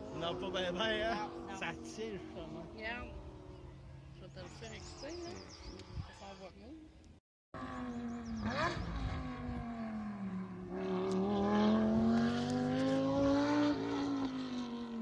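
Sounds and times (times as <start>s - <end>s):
race car engine accelerating: 7.6s - 15.0s.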